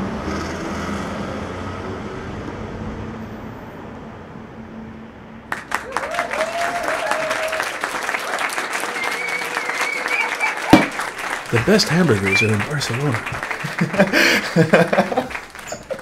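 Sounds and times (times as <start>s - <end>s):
audience applause: 5.5s - 16.0s
person whooping: 5.8s - 7.8s, 8.8s - 10.9s.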